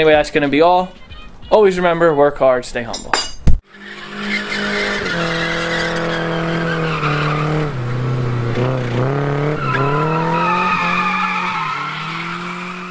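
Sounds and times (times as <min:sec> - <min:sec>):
car engine at high revs: 0:03.6 - 0:12.9
tyres squealing: 0:03.8 - 0:07.9, 0:09.4 - 0:12.9.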